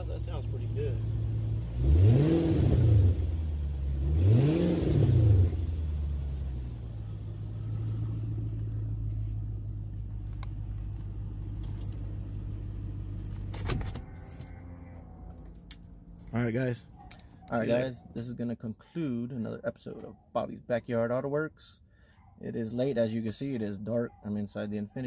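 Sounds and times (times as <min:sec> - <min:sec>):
car engine revving and idling: 0:00.0 - 0:18.0.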